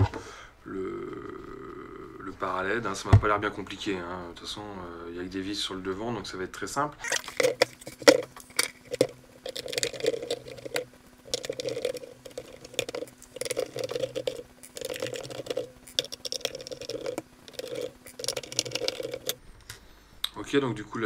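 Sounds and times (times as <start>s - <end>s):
screwdriver scraping and squeaking: 7.0s - 8.9s.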